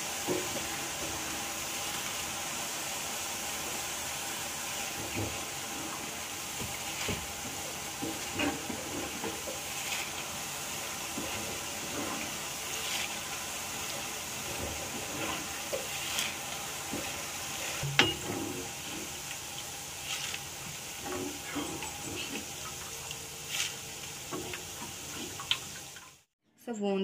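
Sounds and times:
metal spoon scraping and clinking pan: 0:17.8 - 0:18.5.

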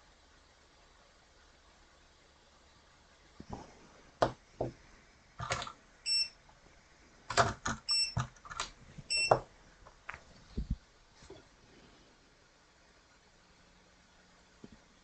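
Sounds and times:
high electronic beeps: 0:06.1 - 0:06.4, 0:07.9 - 0:08.2, 0:09.1 - 0:09.4.

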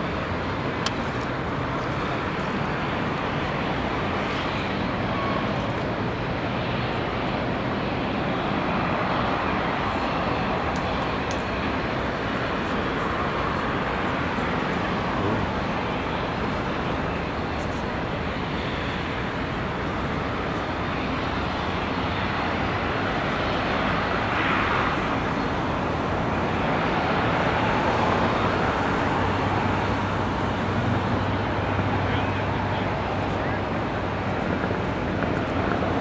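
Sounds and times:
city traffic noise: 0:00.0 - 0:36.0.

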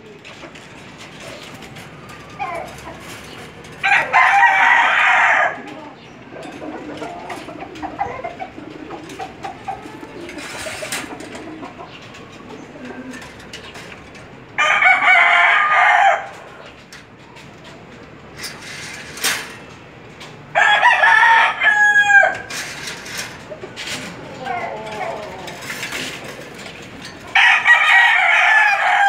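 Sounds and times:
pigeon cooing: 0:00.0 - 0:17.0, 0:20.6 - 0:29.0
rooster crowing: 0:03.8 - 0:05.7, 0:14.6 - 0:16.6, 0:20.5 - 0:22.5, 0:27.3 - 0:29.0.

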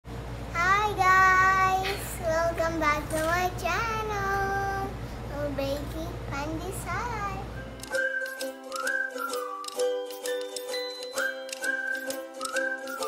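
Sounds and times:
child singing wordless tune: 0:00.5 - 0:07.6.

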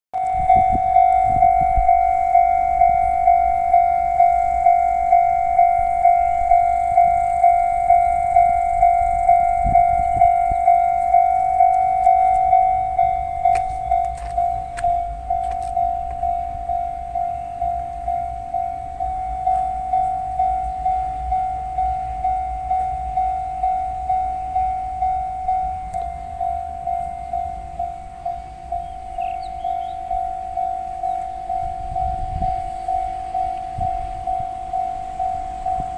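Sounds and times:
level crossing alarm dinging: 0:00.2 - 0:35.9.

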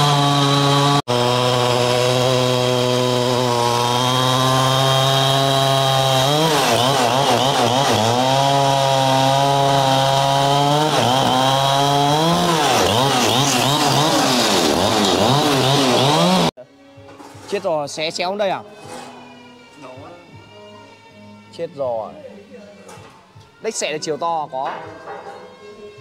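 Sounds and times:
chainsaw cutting wood: 0:00.0 - 0:16.6.

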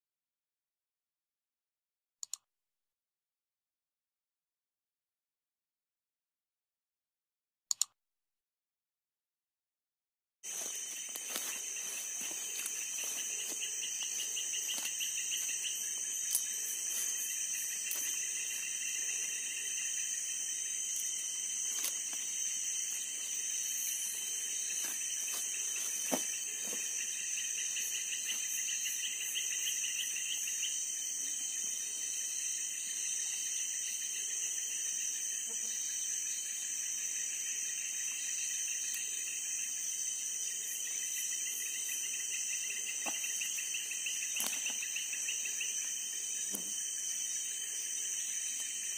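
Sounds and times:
crickets chirping: 0:10.4 - 0:48.9
insects trilling: 0:10.4 - 0:48.9.

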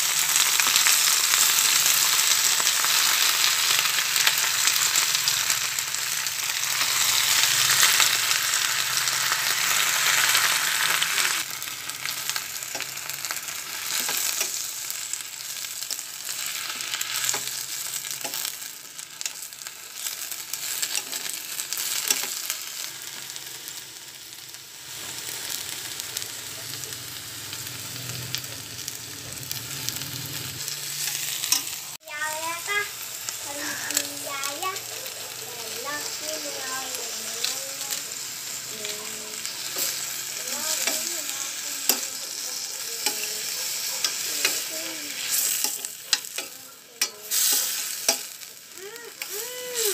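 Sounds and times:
greens sizzling in a pan: 0:00.0 - 0:49.9
metal spatula scraping a pan: 0:39.5 - 0:48.4.

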